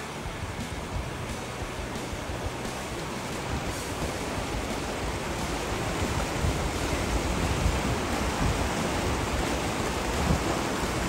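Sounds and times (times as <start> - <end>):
fast-flowing river rushing: 0.0 - 11.0
low rumbling: 0.0 - 11.0.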